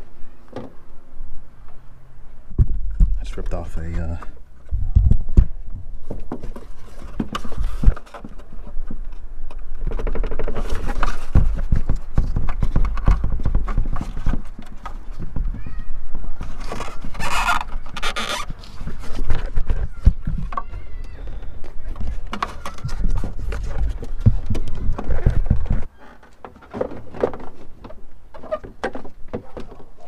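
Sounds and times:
plastic scraping rustles: 0:06.0 - 0:30.0.

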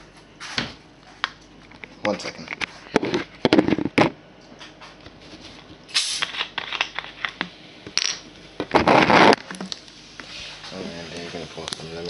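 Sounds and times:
short hiss: 0:05.9 - 0:06.3.

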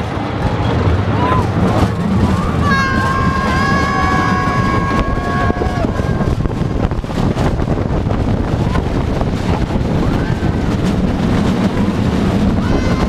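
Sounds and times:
wind rushing on microphone: 0:00.0 - 0:13.0
riders screaming: 0:02.2 - 0:06.8, 0:12.4 - 0:13.0.

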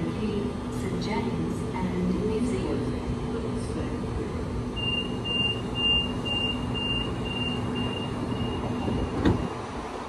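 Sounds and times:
hum and rumble of train: 0:00.0 - 0:10.0
train door warning beeps: 0:04.7 - 0:09.7.

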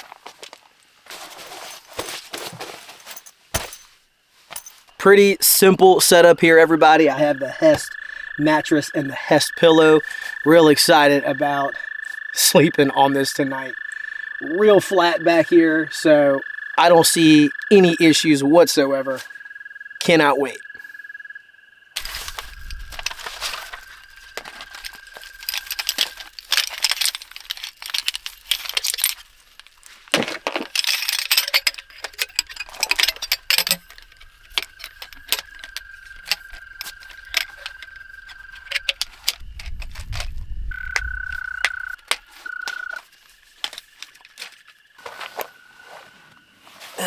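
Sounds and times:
metal poles clicking together: 0:22.0 - 0:43.0.

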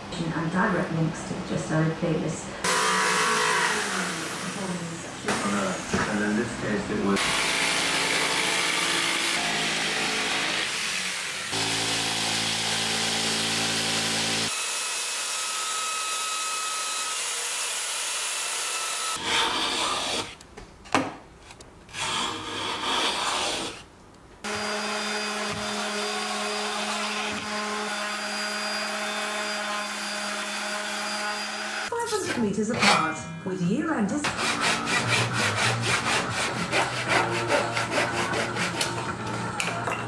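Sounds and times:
jigsaw sawing plywood: 0:02.6 - 0:04.6, 0:07.1 - 0:20.4, 0:24.4 - 0:31.9, 0:34.2 - 0:39.0
belt sander grinding: 0:07.2 - 0:20.2, 0:24.4 - 0:31.9.

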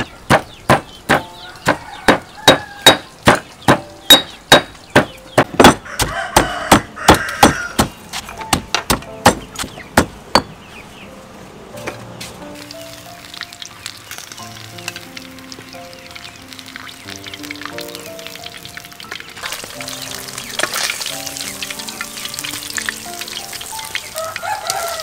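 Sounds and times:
pestle pounding in stone mortar: 0:00.0 - 0:10.6.

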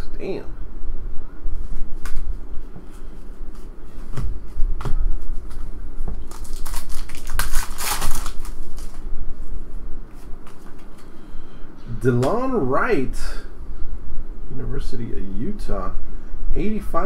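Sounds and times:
foil pack tearing open: 0:06.2 - 0:09.0.

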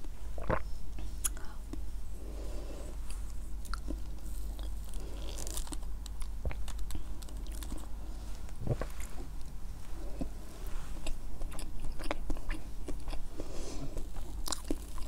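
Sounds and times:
close chewing and mouth clicks: 0:03.0 - 0:08.0, 0:10.1 - 0:15.0.

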